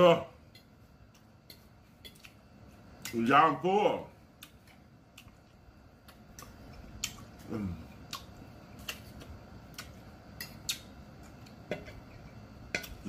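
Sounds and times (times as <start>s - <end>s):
chewing mouth sounds: 4.4s - 10.9s.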